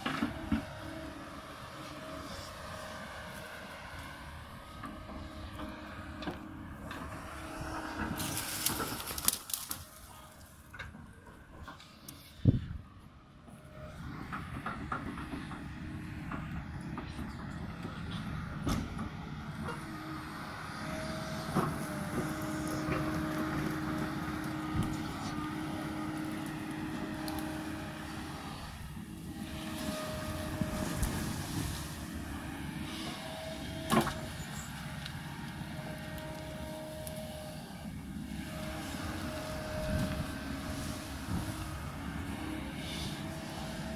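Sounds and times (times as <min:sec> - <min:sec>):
excavator diesel engine: 0:00.0 - 0:43.9
earth and stones sliding: 0:08.1 - 0:10.7.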